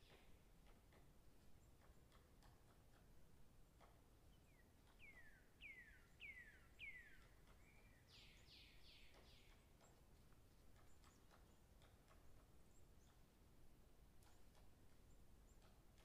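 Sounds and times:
faint bird song whistles: 4.4s - 9.6s.

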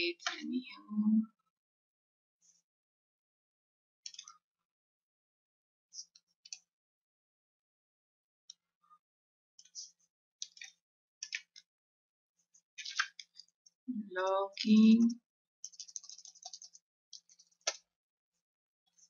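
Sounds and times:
computer mouse clicks: 4.1s - 4.3s, 15.7s - 17.8s.

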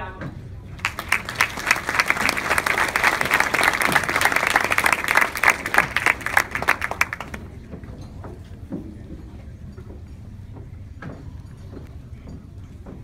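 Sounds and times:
audience applauding: 0.7s - 7.6s.

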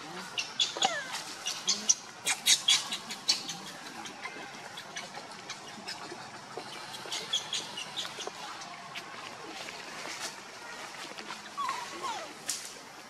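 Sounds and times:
baby monkey squeaking cries: 0.4s - 3.6s.

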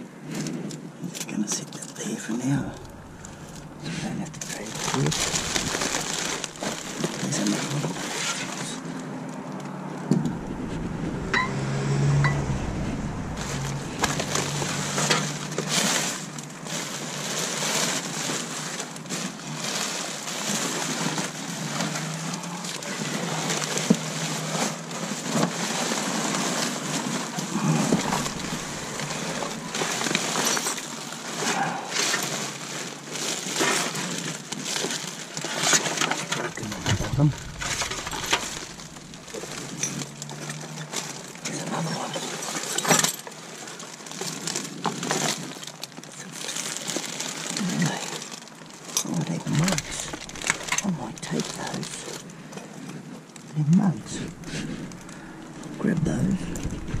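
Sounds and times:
items rummaged in dumpster: 0.2s - 9.2s, 10.1s - 57.0s
knocks rustles and clinks: 42.4s - 53.0s.

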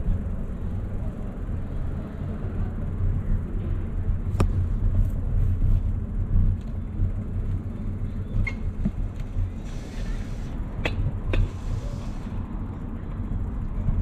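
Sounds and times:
road noise: 0.0s - 14.0s.

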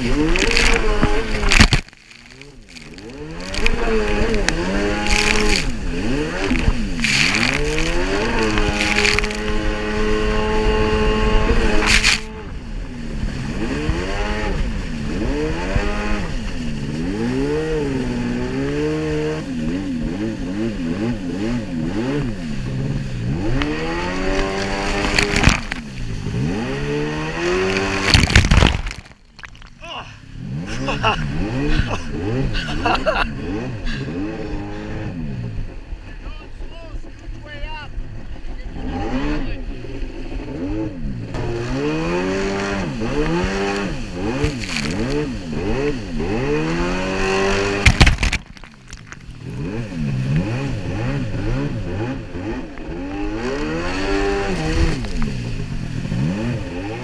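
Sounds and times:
water spray splashing: 0.0s - 10.0s, 11.7s - 12.3s, 23.2s - 30.0s, 42.4s - 50.9s
jet ski engine revving: 0.0s - 29.1s, 30.2s - 48.4s, 49.2s - 57.0s.

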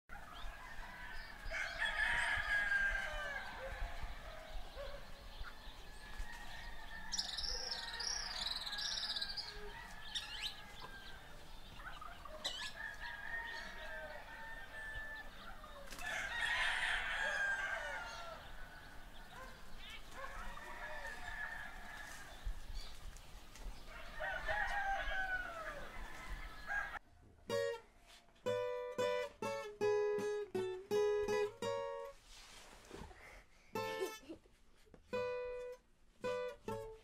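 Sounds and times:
rooster crowing: 0.2s - 4.7s, 5.9s - 11.5s, 12.4s - 19.5s, 20.2s - 22.4s, 23.9s - 27.0s.

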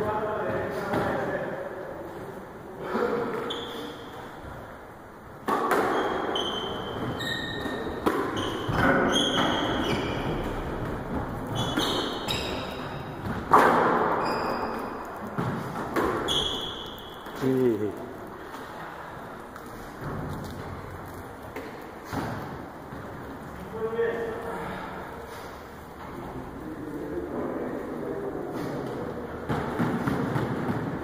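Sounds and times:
shoes squeaking on floorboards: 3.3s - 4.6s, 5.6s - 17.7s
squash ball hits: 5.4s - 17.4s, 29.4s - 31.0s.

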